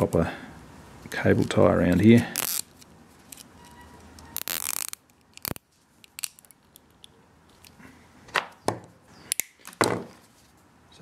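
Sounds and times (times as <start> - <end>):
cable tie zipping: 2.0 - 6.5.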